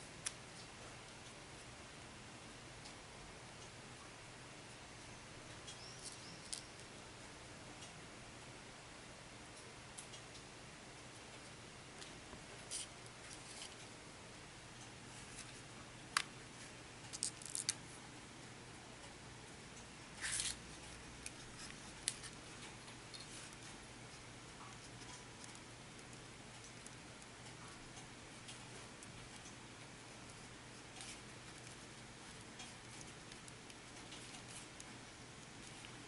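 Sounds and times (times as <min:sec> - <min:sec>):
fingers twisting wire leads: 0:17.0 - 0:17.8, 0:20.2 - 0:36.0.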